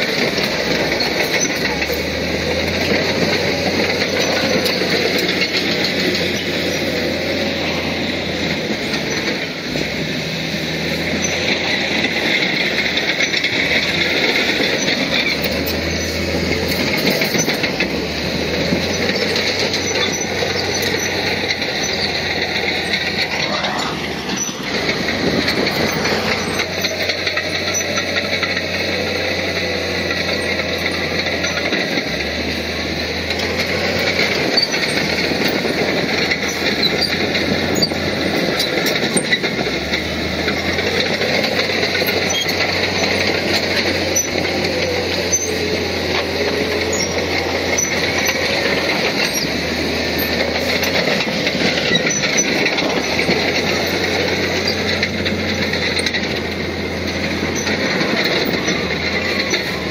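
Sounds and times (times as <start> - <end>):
bulldozer diesel engine running: 0.0 - 59.9
steel tracks clanking: 0.0 - 59.9
wavering squeal: 10.4 - 31.8, 41.5 - 59.9.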